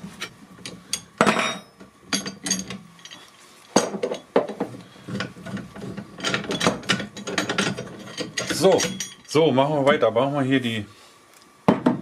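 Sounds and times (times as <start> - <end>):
metal clinks and knocks: 0.2 - 9.4.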